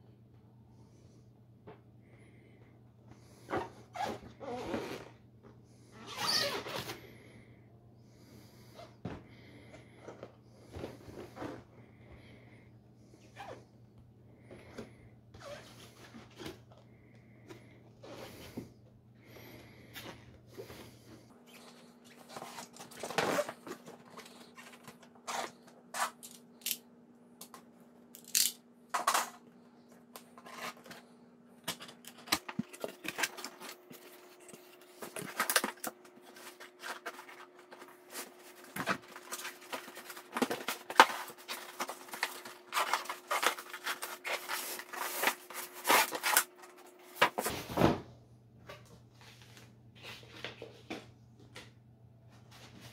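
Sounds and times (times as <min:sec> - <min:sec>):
cardboard and plastic packaging handled: 0:21.3 - 0:26.4, 0:30.0 - 0:48.0.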